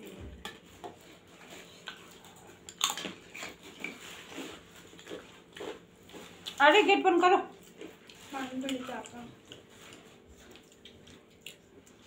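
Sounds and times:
soft chewing: 0.0s - 12.0s.

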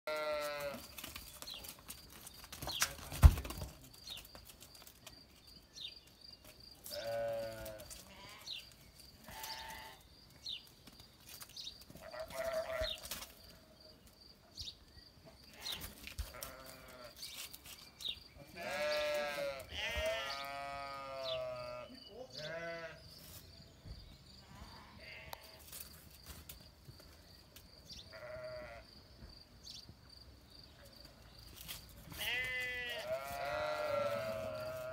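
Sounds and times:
sheep bleating: 0.1s - 0.8s, 6.9s - 8.5s, 9.2s - 10.0s, 12.0s - 13.0s, 15.5s - 17.2s, 18.4s - 23.0s, 28.1s - 28.8s, 32.2s - 34.9s.

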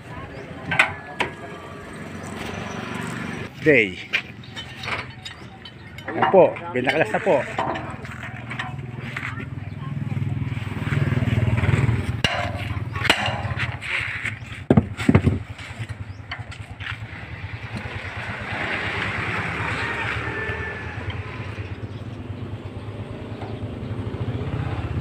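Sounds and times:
faint voices: 0.0s - 14.8s
steel bar striking metal frame: 12.2s - 13.9s.

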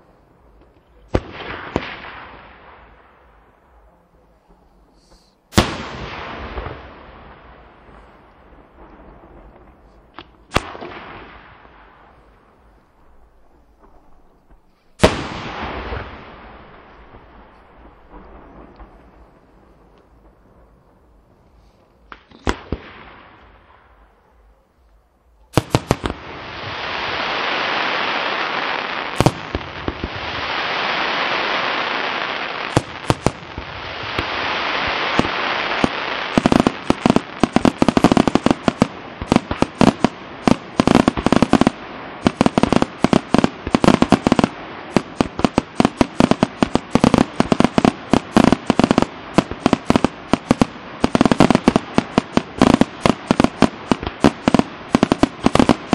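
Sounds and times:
firework bangs: 0.0s - 3.5s, 4.5s - 24.2s, 25.5s - 55.9s
rapid crackling bangs: 35.0s - 55.9s.

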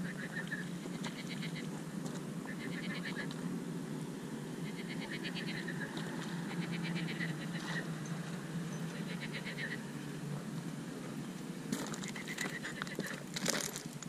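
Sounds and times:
animal rattling call: 12.0s - 13.6s.

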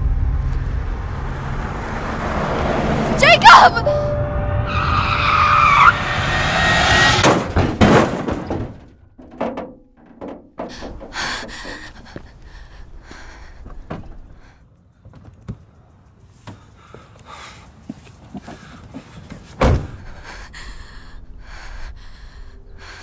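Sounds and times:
tyres skidding: 1.4s - 14.5s
heavy thump of car impact: 7.1s - 11.9s, 19.6s - 20.1s
quiet knocks: 7.2s - 12.4s
car door clunking open: 19.5s - 20.1s.

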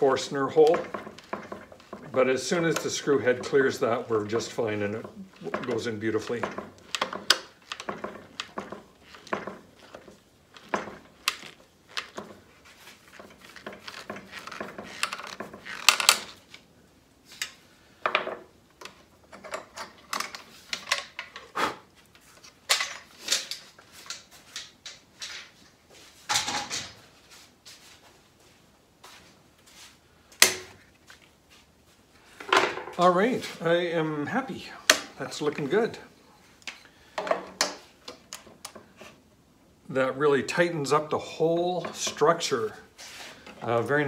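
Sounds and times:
clicks knocks and creaks of clamps: 0.0s - 16.7s, 17.3s - 27.0s, 30.4s - 31.2s.

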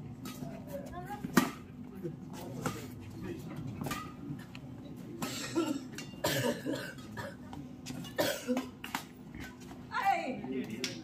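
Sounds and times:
people coughing: 5.2s - 8.8s
racket striking shuttlecock: 8.6s - 9.5s.

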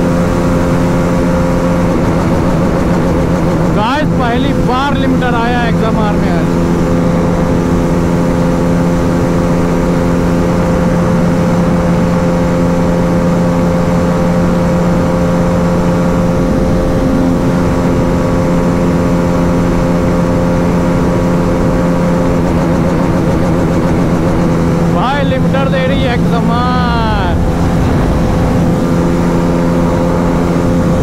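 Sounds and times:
motorcycle engine at high revs: 0.0s - 31.0s
wind rumble on microphone: 6.4s - 31.0s.

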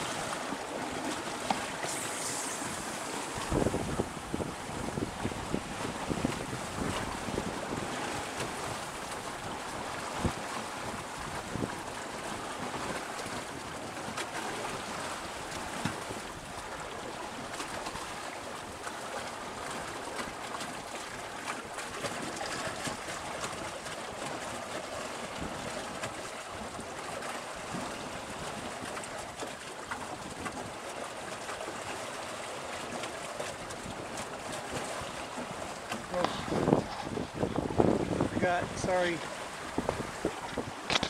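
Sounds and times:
small splashes: 0.0s - 4.2s
water rushing past a hull: 0.0s - 41.0s.

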